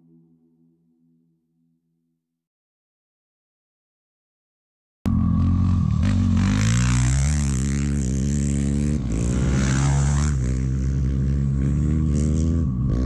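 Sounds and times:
engine revving: 5.1s - 13.0s.

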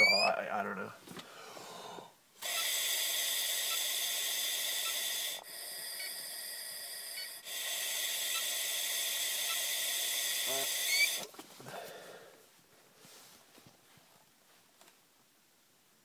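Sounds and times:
man blowing into breathalyzer: 1.8s - 11.3s.

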